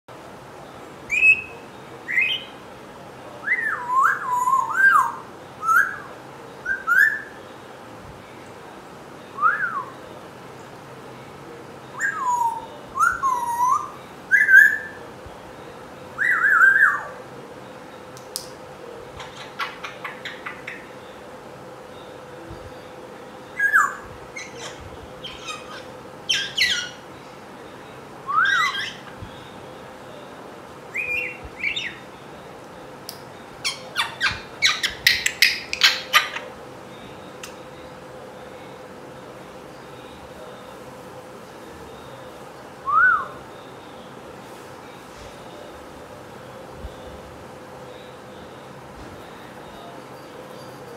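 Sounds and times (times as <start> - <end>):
parrot whistling and squawking: 23.6 - 27.0, 28.3 - 29.2, 33.6 - 36.5.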